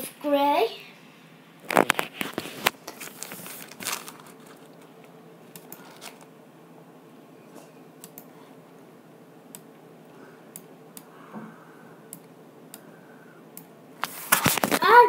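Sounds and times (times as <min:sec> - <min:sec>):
low room hiss: 0:00.0 - 0:15.0
computer mouse clicking: 0:05.5 - 0:05.9, 0:08.0 - 0:08.3, 0:12.1 - 0:12.9.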